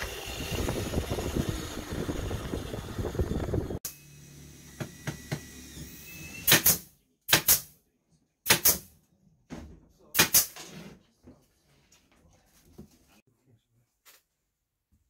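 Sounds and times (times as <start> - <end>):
nail gun firing: 6.4 - 7.7, 8.5 - 8.9, 10.2 - 10.6.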